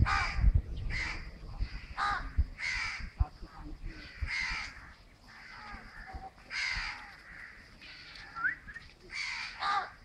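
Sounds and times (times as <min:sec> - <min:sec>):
crows cawing: 0:00.0 - 0:03.2, 0:04.0 - 0:10.0.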